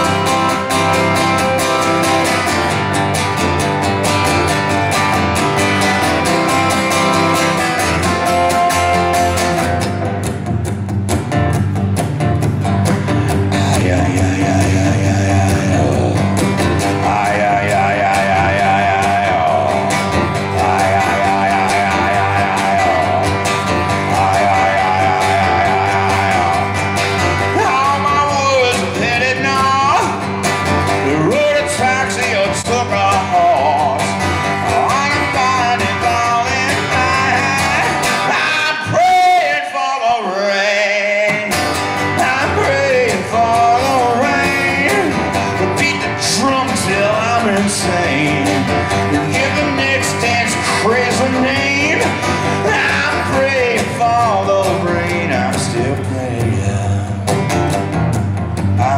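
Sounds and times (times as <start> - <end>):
strummed acoustic guitar: 0.0 - 58.9
person singing wordlessly: 13.5 - 30.2, 31.0 - 41.5, 42.1 - 57.3.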